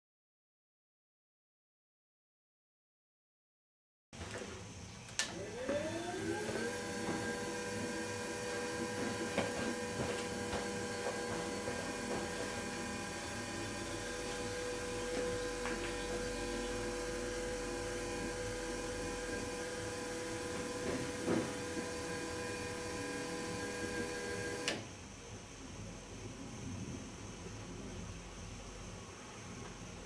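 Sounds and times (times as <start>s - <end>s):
test bench machine hum: 4.2s - 30.0s.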